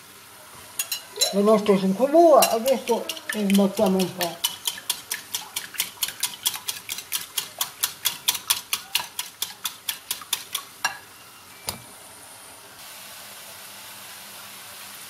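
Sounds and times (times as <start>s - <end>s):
faint sizzle from pan: 0.0s - 15.0s
whisk clicking against bowl: 2.4s - 10.7s.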